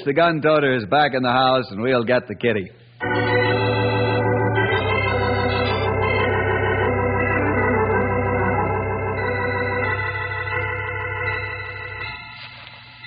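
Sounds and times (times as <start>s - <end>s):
organ sustained chords: 3.0s - 13.0s.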